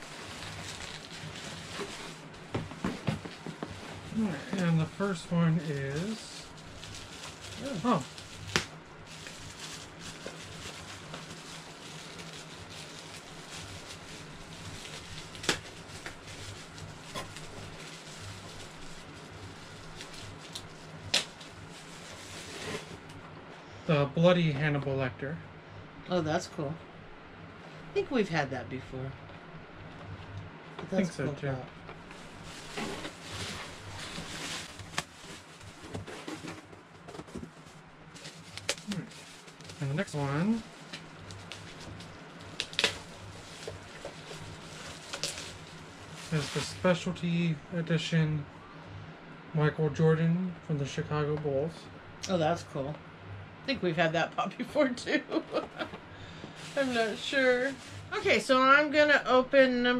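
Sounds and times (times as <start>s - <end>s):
plastic wrapping rustling: 0.0s - 23.3s, 31.1s - 47.5s, 55.3s - 58.6s.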